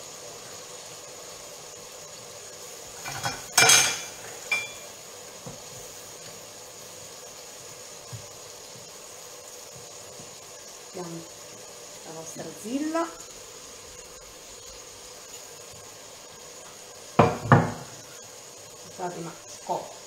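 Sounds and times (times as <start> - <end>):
faint steady hiss: 0.0 - 20.0
dishes and cutlery clattering: 3.0 - 4.8
ringing clink: 3.6 - 4.8.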